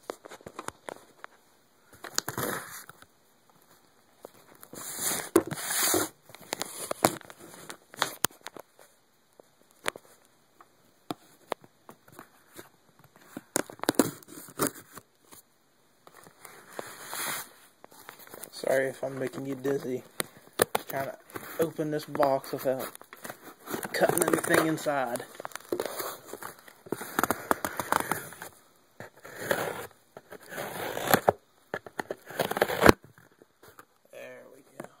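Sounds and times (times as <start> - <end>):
cardboard box being opened: 23.2 - 31.4.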